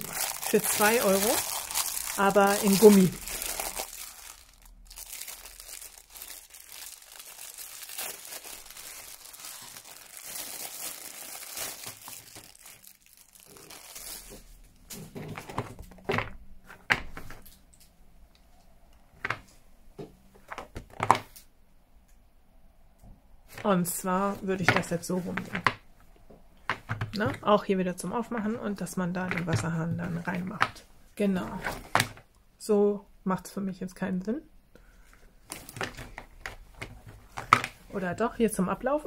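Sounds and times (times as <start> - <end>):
plastic film crinkling: 0.0 - 15.6.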